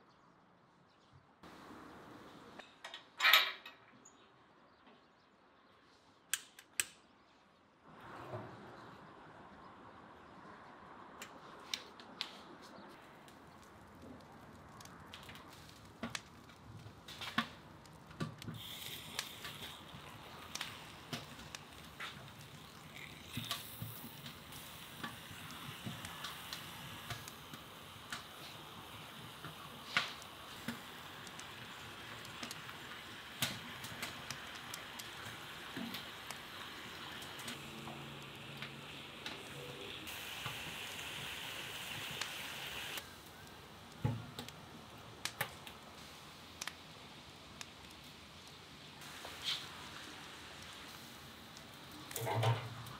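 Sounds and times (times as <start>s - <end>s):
kindling crackling and snapping: 11.2s - 52.9s
meat sizzling with pops: 13.0s - 52.9s.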